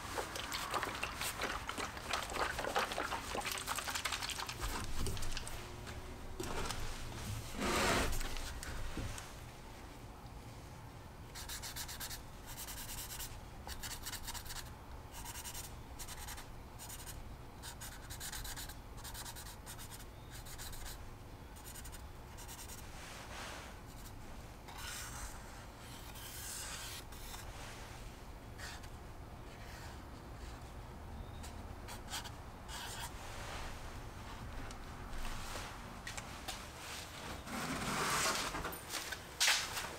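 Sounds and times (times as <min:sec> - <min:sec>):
marker writing on plastic: 0:11.4 - 0:21.0.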